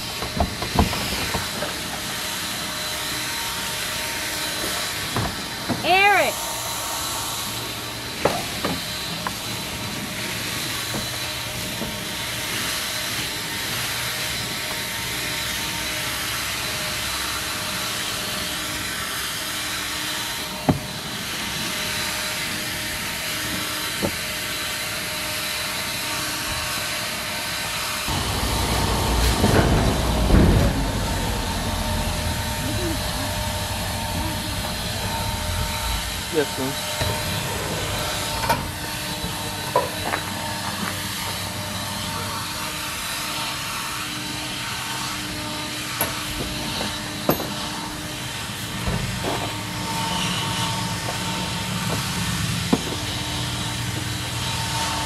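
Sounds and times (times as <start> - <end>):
leaf blower running: 0.0 - 55.0
heavy low rumble: 28.1 - 38.9.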